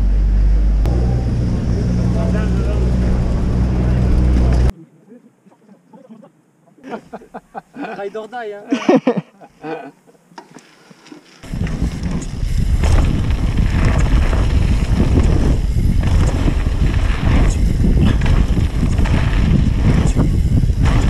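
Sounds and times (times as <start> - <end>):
bike tyres rolling on dirt: 10.6 - 21.0
wind buffeting microphone: 11.4 - 21.0.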